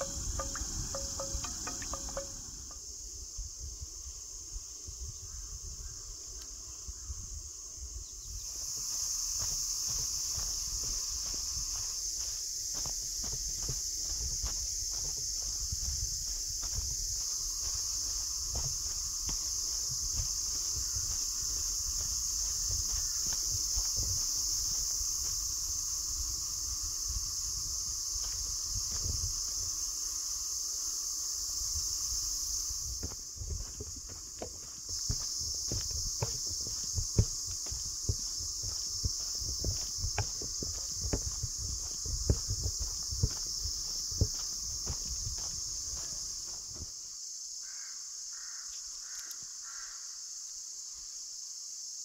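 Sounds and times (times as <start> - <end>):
soft knocks: 0.0 - 2.5
insect chorus drone: 0.0 - 52.0.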